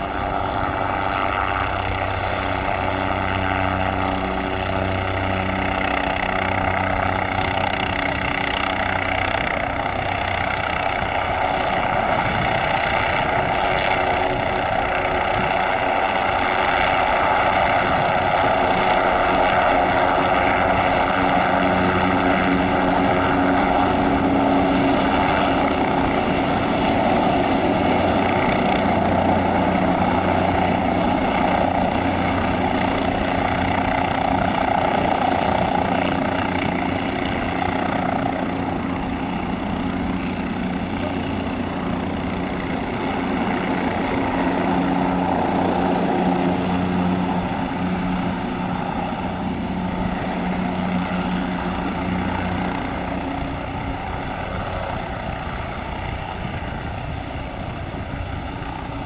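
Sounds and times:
helicopter engine whine: 0.0 - 59.0
helicopter rotor beating: 0.0 - 59.0.

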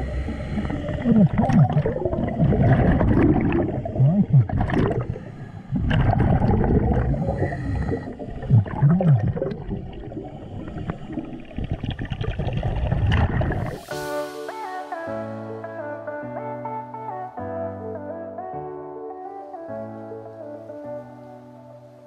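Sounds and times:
diver exhaling bubbles: 0.0 - 13.9.

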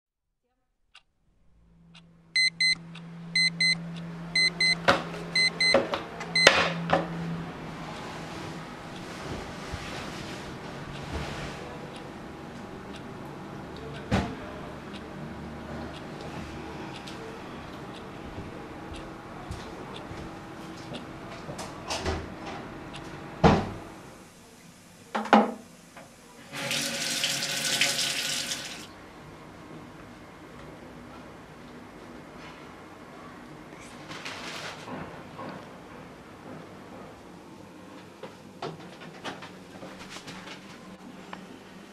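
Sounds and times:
alarm clock beeping: 2.4 - 2.8, 3.4 - 3.8, 4.4 - 4.8, 5.4 - 5.8, 6.4 - 6.6
tap running into washbasin: 26.6 - 28.9.

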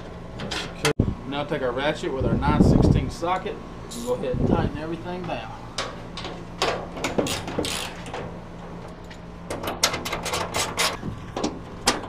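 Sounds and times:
hand ratchet clicking: 7.0 - 8.2.

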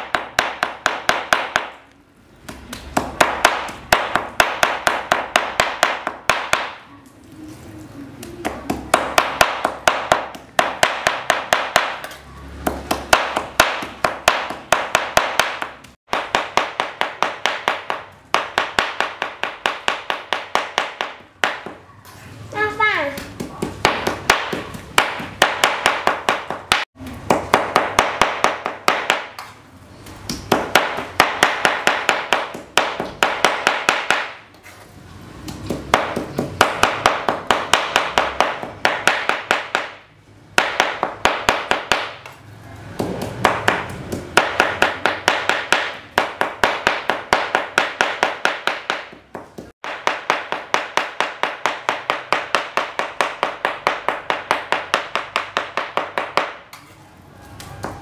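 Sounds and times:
knife chopping on plastic board: 43.0 - 56.7.

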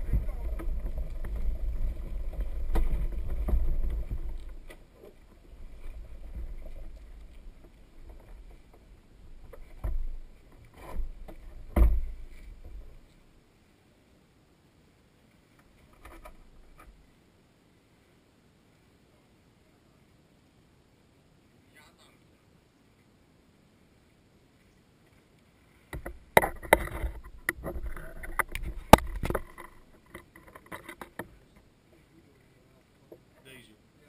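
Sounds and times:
low rumble: 0.0 - 13.1.

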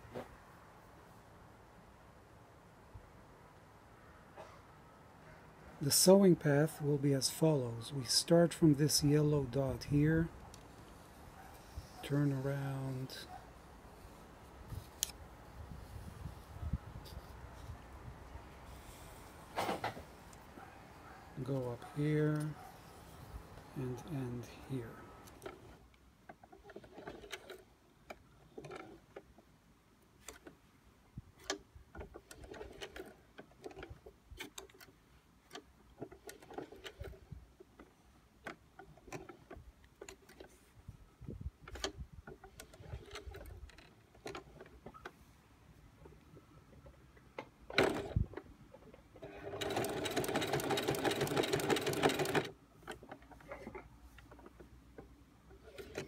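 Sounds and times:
sewing machine clicks and knocks: 26.3 - 29.3, 31.4 - 40.5, 47.4 - 56.0
sewing machine running: 49.2 - 52.5.

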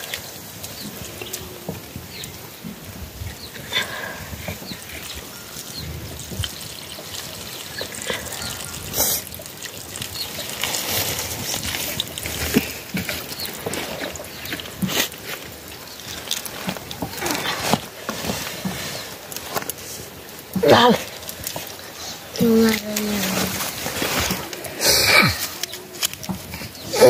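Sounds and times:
water trickling off plate: 5.0 - 17.4.

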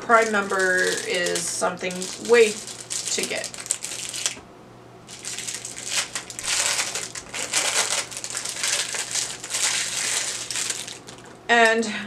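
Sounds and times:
plastic wrapping crinkling: 0.0 - 4.4, 5.1 - 11.5.

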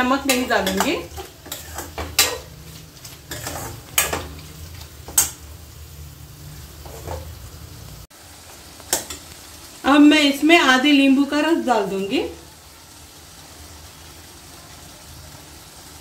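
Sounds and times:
meat sizzling in oil: 0.0 - 16.0
spoon scraping a steel pan: 0.2 - 2.6, 3.3 - 4.3, 6.8 - 7.3.

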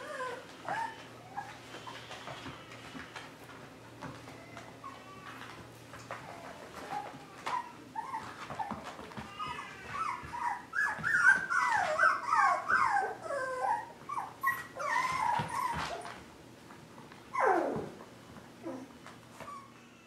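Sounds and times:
puppies yipping: 0.0 - 3.0, 6.2 - 16.2.

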